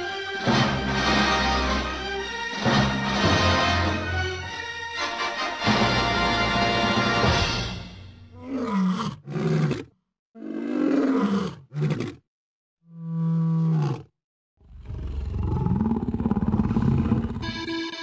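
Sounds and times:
lion growls and roars: 8.3s - 12.2s, 12.9s - 17.4s.

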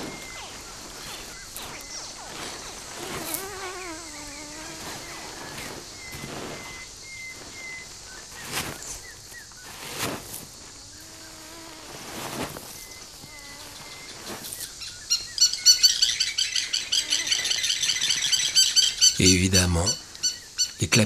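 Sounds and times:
crocodile hatchlings calling: 0.0s - 7.0s
high chirps: 0.0s - 8.0s
crocodile scraping sand: 0.0s - 13.2s.

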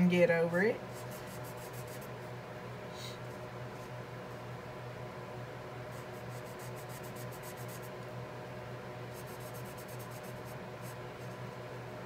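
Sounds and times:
low electrical hum: 0.0s - 12.0s
marker scratching on paper: 1.0s - 2.1s, 5.9s - 7.9s, 9.2s - 11.3s.

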